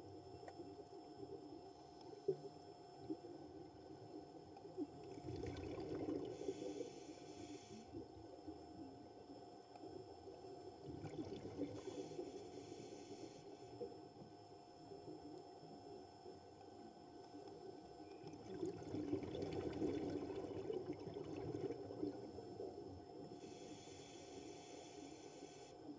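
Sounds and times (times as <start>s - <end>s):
underwater crackling and bubbling: 0.0s - 25.9s
regulator hissing breaths: 6.4s - 8.0s, 11.8s - 13.7s, 23.4s - 25.9s.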